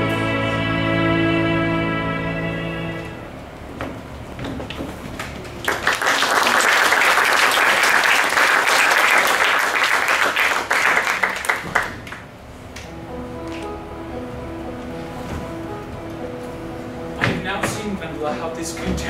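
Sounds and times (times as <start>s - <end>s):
soft music: 0.0s - 3.8s, 12.6s - 19.0s
audience applause: 5.2s - 12.4s.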